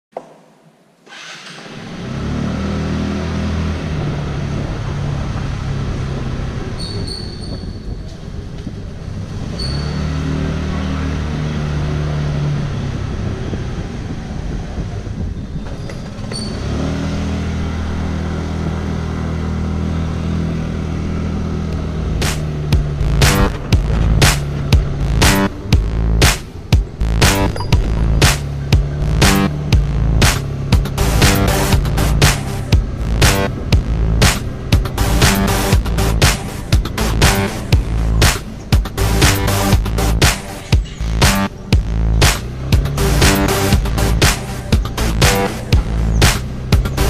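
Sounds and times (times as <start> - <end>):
motorcycle engine running: 1.8 - 47.0
short high squeaks: 6.8 - 8.2, 9.5 - 10.2, 15.5 - 16.9
rhythmic music strikes: 22.1 - 47.0.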